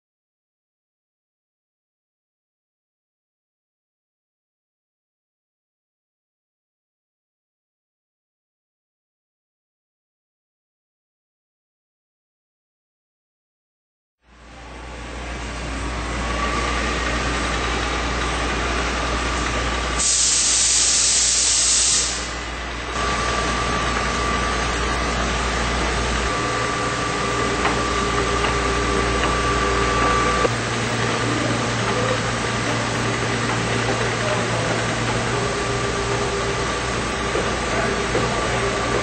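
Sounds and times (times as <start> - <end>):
machine and conveyor hum: 14.3 - 39.0
loud hiss: 19.9 - 28.1
faint machine whine: 22.3 - 39.0.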